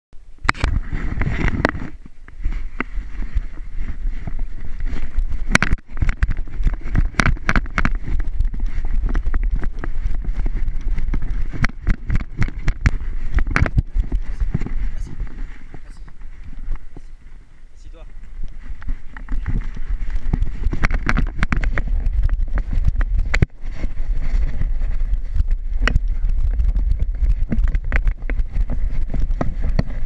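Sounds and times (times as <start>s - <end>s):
wind buffeting microphone: 0.2s - 30.0s
knocks and thumps: 5.4s - 17.1s, 18.6s - 30.0s.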